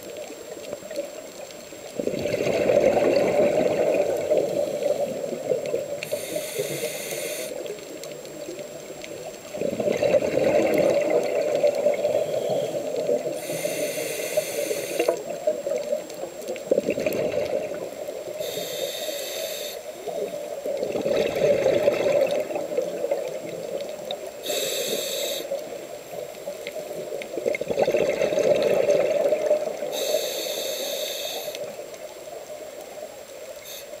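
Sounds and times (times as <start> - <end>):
exhaled bubbles burbling: 1.9 - 6.3, 9.1 - 13.6, 15.0 - 18.4, 20.0 - 24.4, 25.6 - 30.0
regulator inhale hiss: 4.2 - 7.8, 11.9 - 15.3, 17.7 - 20.6, 24.3 - 27.0, 29.7 - 32.0, 33.6 - 34.0.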